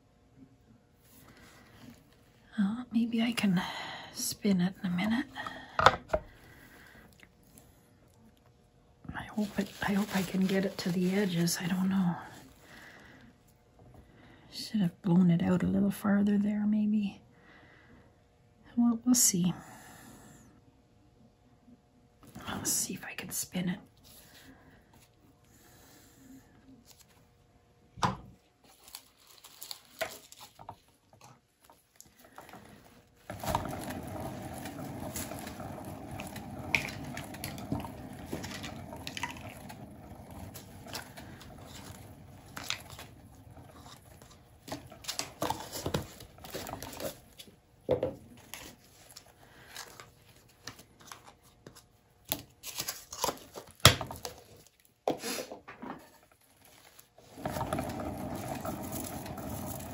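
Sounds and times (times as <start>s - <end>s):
turntable bearing rumbling: 33.2s - 47.2s, 57.2s - 59.9s.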